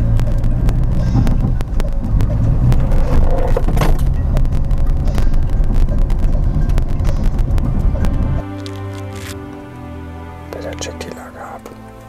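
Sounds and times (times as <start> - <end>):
knocks and rattles: 0.0 - 9.4
car engine drone: 0.0 - 12.0.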